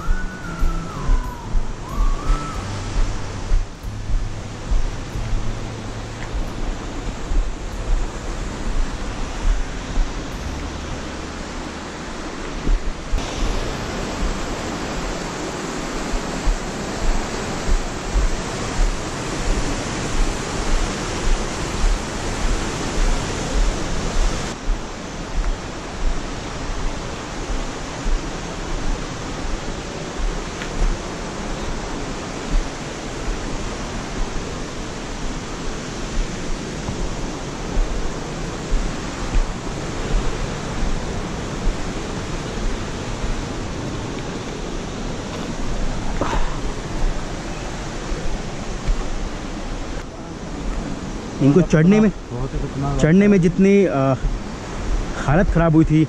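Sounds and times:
steady rushing noise: 0.0 - 56.0
footsteps on rocky trail: 16.1 - 33.4, 36.2 - 42.0, 45.3 - 47.3.

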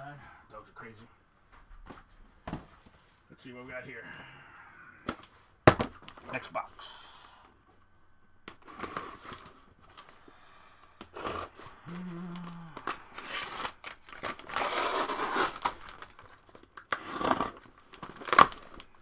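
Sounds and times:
cardboard tearing and crinkling: 8.6 - 10.1, 11.1 - 19.0.

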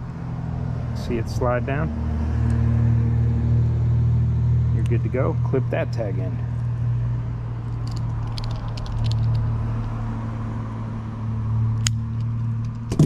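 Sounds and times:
fishing line and tackle clicks: 7.8 - 10.0.

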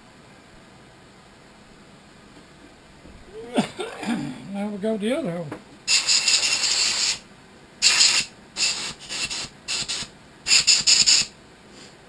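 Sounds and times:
short hissing bursts: 5.9 - 7.2, 7.8 - 12.0.

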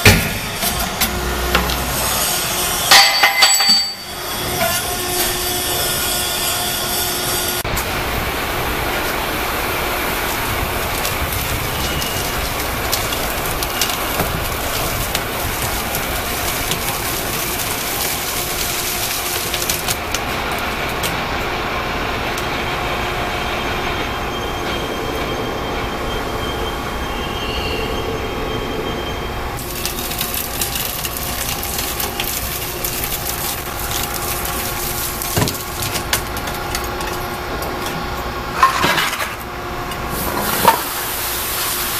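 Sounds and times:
hydraulic press whining: 0.0 - 27.6.

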